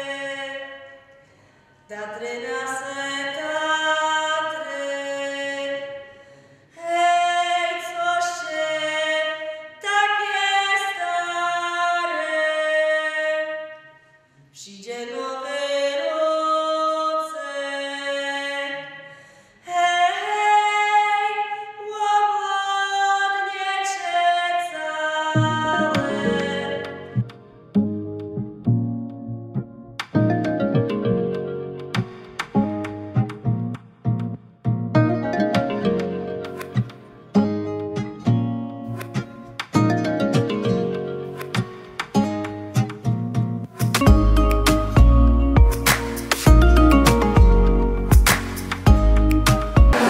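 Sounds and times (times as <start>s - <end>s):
breaths between phrases: 1.1s - 1.9s, 6.1s - 6.8s, 14.0s - 14.6s, 18.9s - 19.7s
person singing unaccompanied: 19.7s - 27.5s
instruments with low bass: 42.8s - 50.0s.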